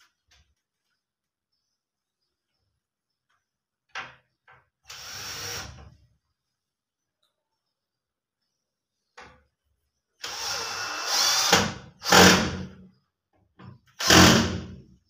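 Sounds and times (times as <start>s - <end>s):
power drill driving screws: 4.9s - 5.8s, 10.2s - 12.7s, 14.0s - 14.8s.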